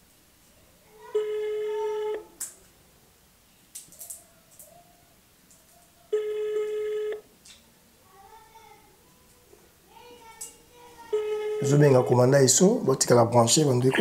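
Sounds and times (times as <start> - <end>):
telephone ringback tone: 1.2 - 2.3, 6.1 - 7.2, 11.1 - 12.1
faint clicks: 3.7 - 4.8, 10.3 - 10.6.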